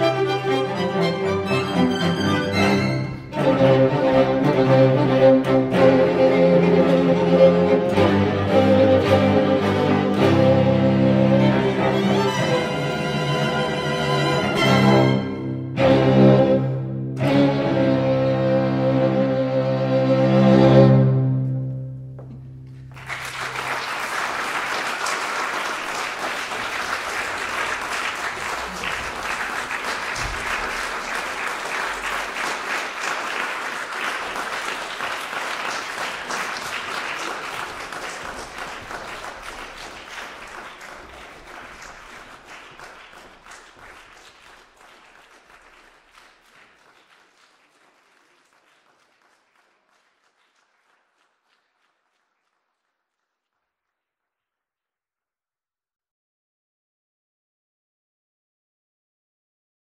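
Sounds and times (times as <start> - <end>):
audience applause: 0.0 - 15.4, 22.8 - 53.5.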